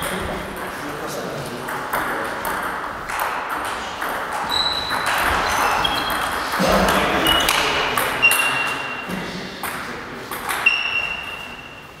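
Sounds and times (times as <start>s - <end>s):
shoes squeaking on wooden floor: 4.3s - 9.1s, 10.5s - 12.0s.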